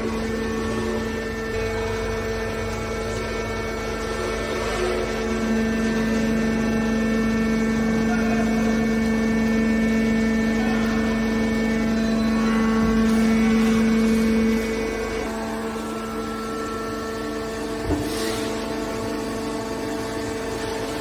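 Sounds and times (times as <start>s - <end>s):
hydraulic pump motor hum: 0.0s - 21.0s.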